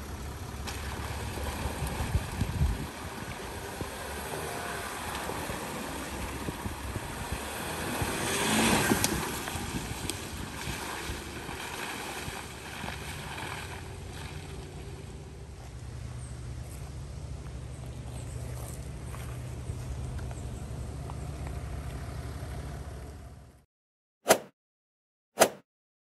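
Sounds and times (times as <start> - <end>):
car engine running: 0.0 - 23.6
tyres splashing through water: 0.5 - 15.5.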